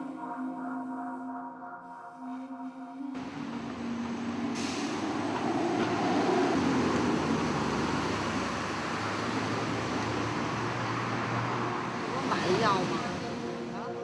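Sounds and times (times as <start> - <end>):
road traffic noise: 3.0 - 14.0.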